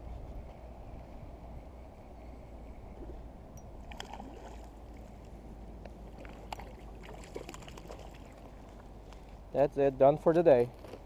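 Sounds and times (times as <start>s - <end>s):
steady low rumble: 0.0s - 10.3s.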